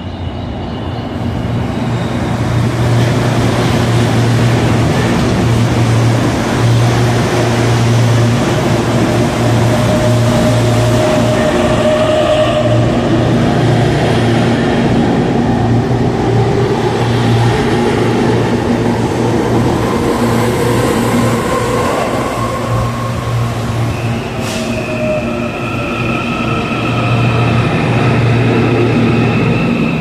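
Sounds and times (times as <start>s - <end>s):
high brake squeal: 23.9s - 27.4s.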